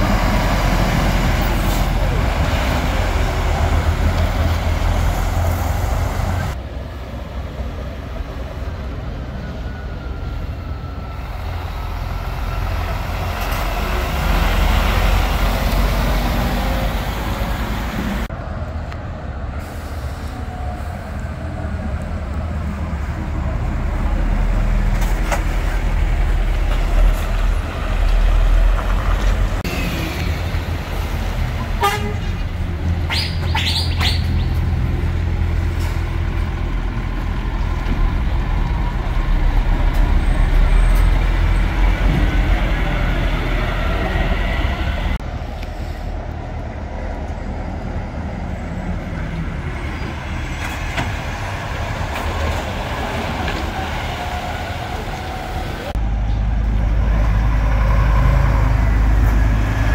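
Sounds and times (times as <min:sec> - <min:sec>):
diesel lorries driving past: 0:00.0 - 0:59.9.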